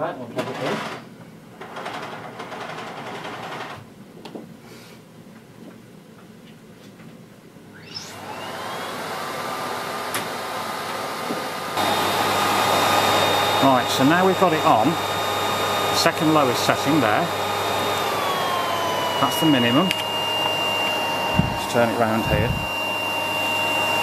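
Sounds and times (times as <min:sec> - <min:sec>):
vacuum cleaner motor whining: 0:07.8 - 0:24.0.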